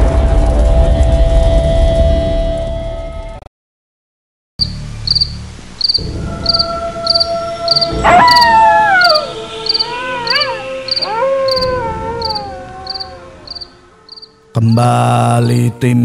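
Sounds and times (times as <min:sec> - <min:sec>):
low drone: 0:00.0 - 0:03.4, 0:04.6 - 0:15.8
cricket chirps: 0:04.6 - 0:14.8
howl-like wails sliding downward: 0:06.0 - 0:14.3.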